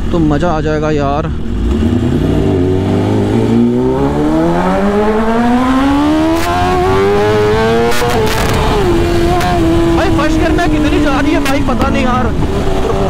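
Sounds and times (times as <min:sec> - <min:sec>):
motorcycle engine under full throttle: 0:01.3 - 0:13.0.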